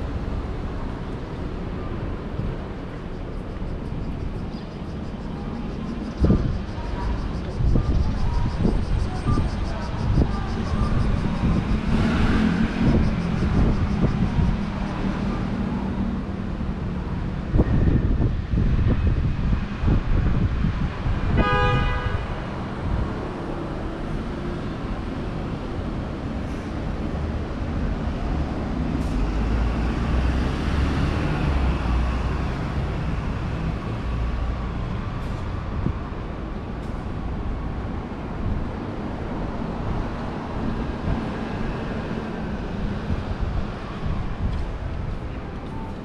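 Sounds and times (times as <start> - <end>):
street traffic: 0.0 - 46.0
heavy vehicle rumbling past: 6.2 - 21.4, 22.2 - 46.0
car horn toot: 21.3 - 22.4.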